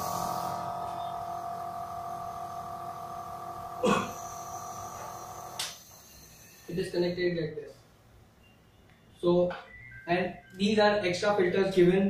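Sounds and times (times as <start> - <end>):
nebulizer compressor humming: 0.0 - 7.2.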